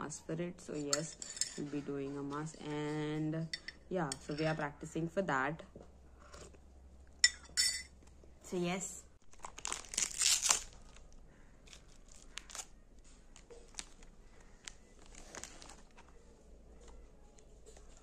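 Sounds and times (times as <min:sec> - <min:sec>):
packet crinkling: 0:09.2 - 0:16.3
biscuit crunching: 0:09.2 - 0:18.0.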